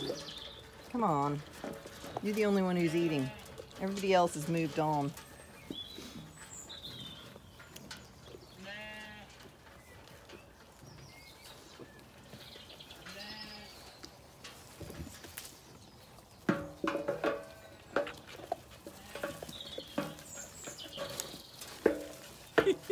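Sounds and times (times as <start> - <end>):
sheep bleating: 8.6 - 9.3.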